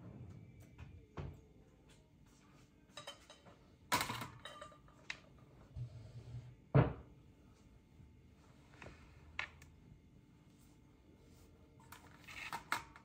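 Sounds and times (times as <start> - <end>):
dishes and utensils clinking: 2.8 - 5.3.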